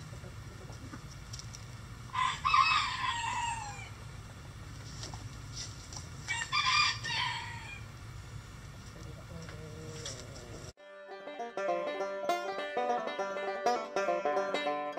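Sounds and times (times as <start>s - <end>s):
rooster crowing: 2.1s - 4.0s, 6.3s - 8.0s.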